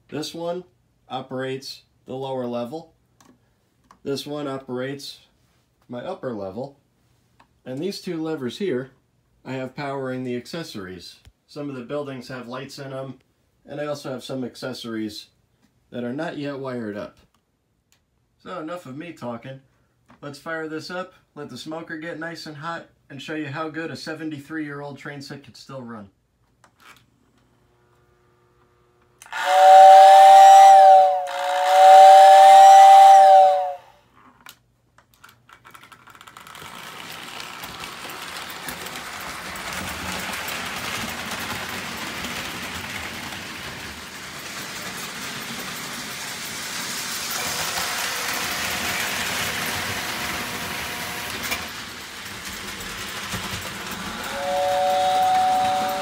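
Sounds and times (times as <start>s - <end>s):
model train running: 29.2s - 33.8s, 36.2s - 56.0s
toy train whistle: 29.2s - 34.0s, 54.0s - 56.0s.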